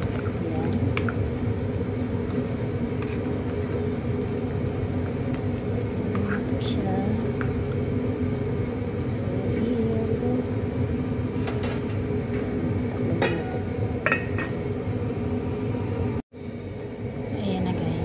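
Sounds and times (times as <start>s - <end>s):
steady low hum: 0.0s - 18.0s
glass lid clinking on pot: 13.2s - 14.6s.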